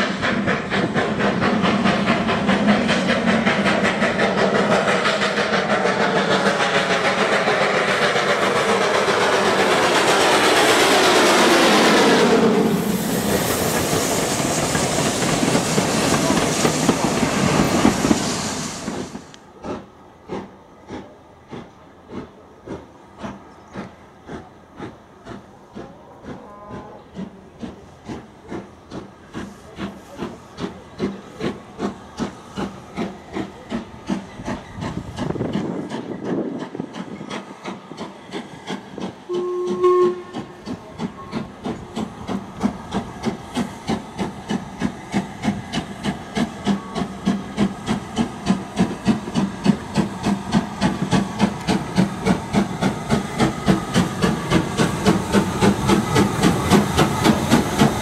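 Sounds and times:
steam locomotive exhaust beats: 0.0 - 58.0
steam whistle blast: 39.3 - 40.6.

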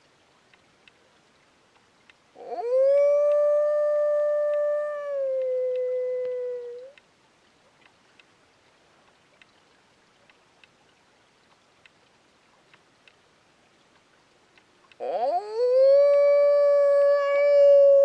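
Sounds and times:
faint night-time hiss: 0.0 - 18.0
small ticks: 0.5 - 1.0, 1.7 - 2.3, 3.1 - 7.1, 7.7 - 8.3, 9.0 - 10.8, 11.4 - 15.2.

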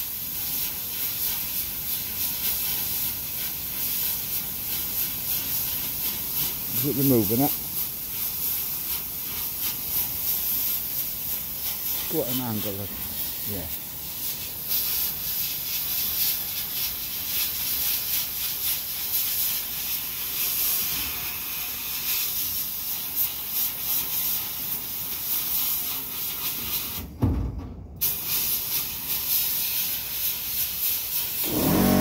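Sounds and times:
sandblast air hiss: 0.0 - 27.1, 28.0 - 32.0.

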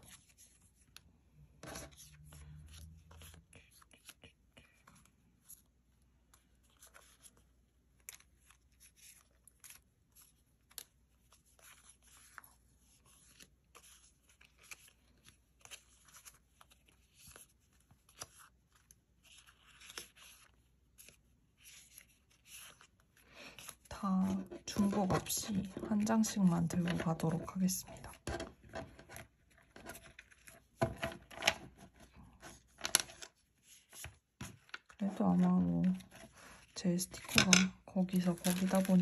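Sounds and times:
paper sheets rustling: 38.2 - 39.0.

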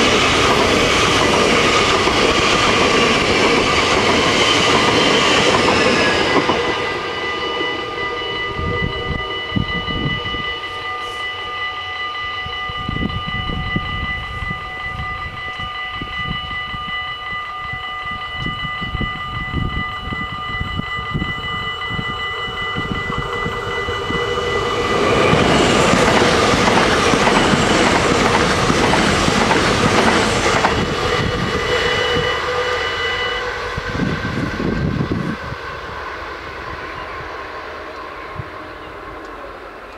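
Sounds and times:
level crossing bells ringing: 0.0 - 33.6
approaching train rushing: 0.0 - 39.9
passing train: 0.0 - 39.9.

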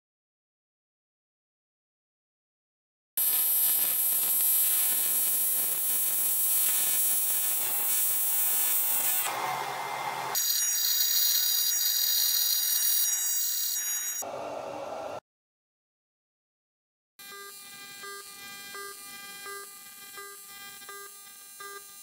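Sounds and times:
welding arc buzzing and hissing: 3.2 - 9.4, 10.2 - 14.2, 17.2 - 22.0.

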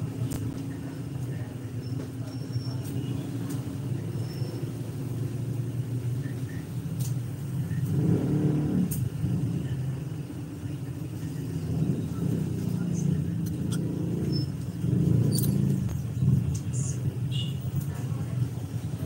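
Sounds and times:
vehicle engine passing: 7.3 - 19.0.

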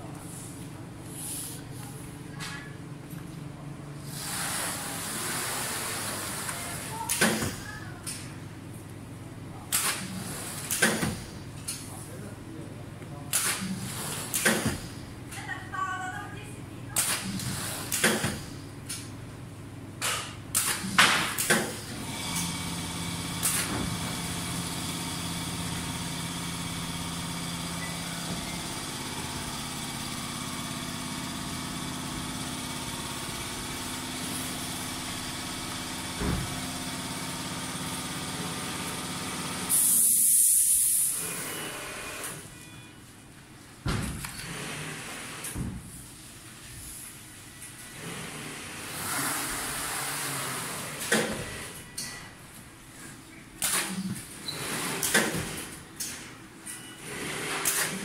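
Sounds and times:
air hissing: 39.7 - 41.2.

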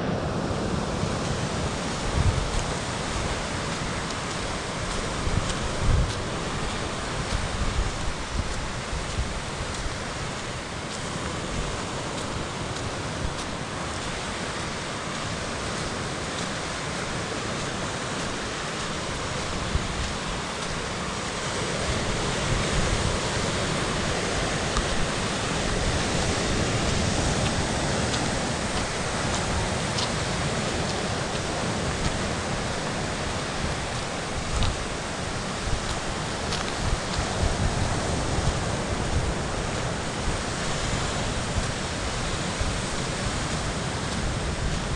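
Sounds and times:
surf on rocky shore: 0.0 - 44.9
wind on microphone: 0.0 - 44.9.

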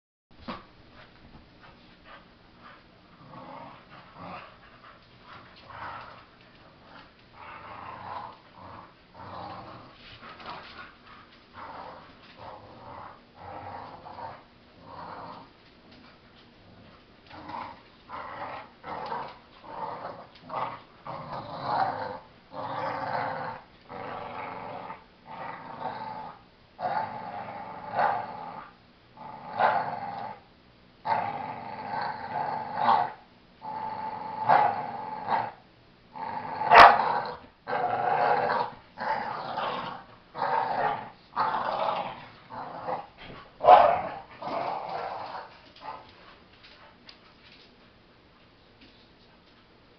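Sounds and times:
dogs growling while play-fighting: 1.7 - 46.8.

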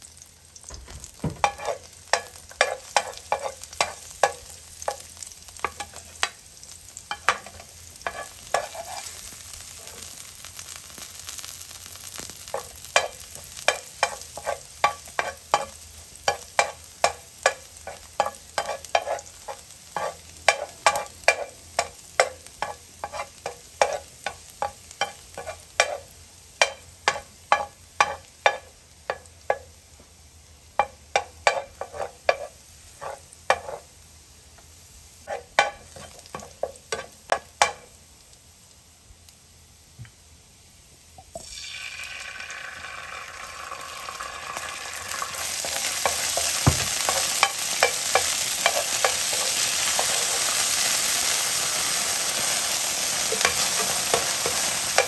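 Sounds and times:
garlic sizzling in hot oil: 0.0 - 55.0
metal spatula scraping pan: 1.2 - 6.0, 7.1 - 9.2, 12.5 - 26.0, 30.8 - 33.9.

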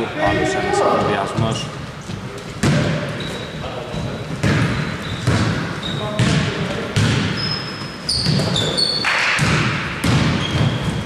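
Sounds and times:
basketball bouncing indoors: 2.1 - 11.0
shoe squeaks on floor: 3.1 - 6.4, 7.2 - 9.3, 10.3 - 11.0.

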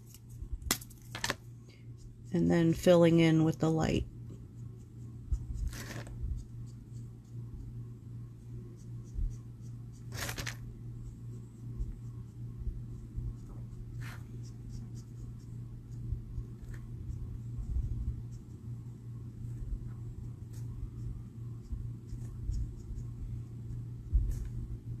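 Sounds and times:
steady low hum: 0.0 - 25.0
marker scratching on cardstock: 4.4 - 7.7, 8.6 - 18.6, 19.8 - 23.3
paper rustle: 5.7 - 6.1, 10.1 - 10.6.

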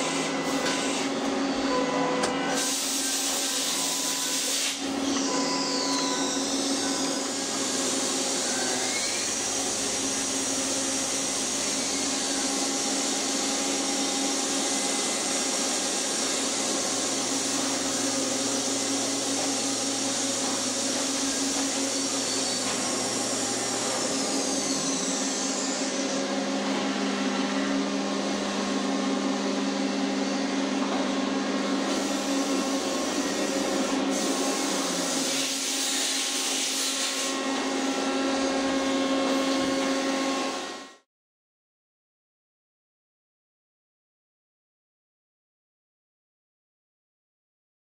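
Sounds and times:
machinery whirring: 0.0 - 40.8.

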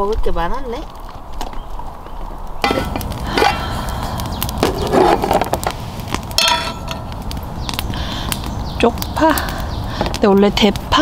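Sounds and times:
cookware and containers clattering: 2.6 - 3.8
low rumble: 2.6 - 10.0.

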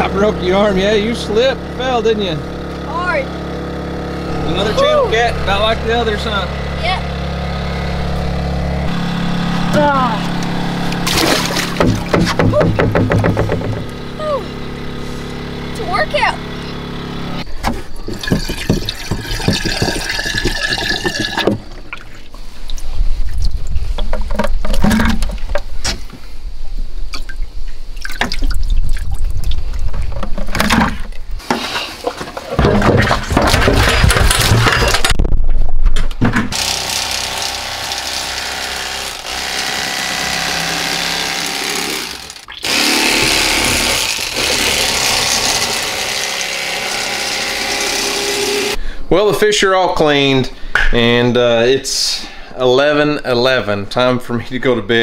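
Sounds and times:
fish splashing in water: 10.5 - 12.1
water running in a sink: 18.2 - 21.6.

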